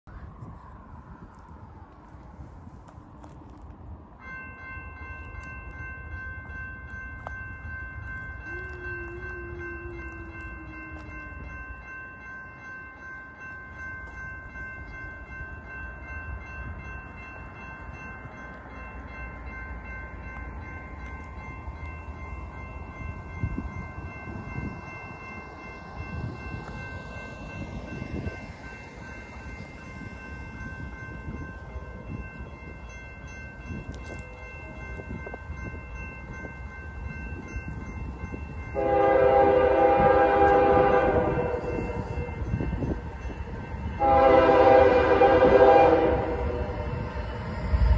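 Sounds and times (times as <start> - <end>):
locomotive air horn blast: 38.8 - 42.0, 44.0 - 46.8.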